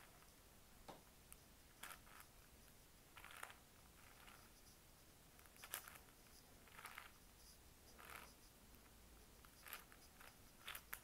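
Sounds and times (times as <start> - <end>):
plastic puzzle cube clicking: 3.2 - 4.4.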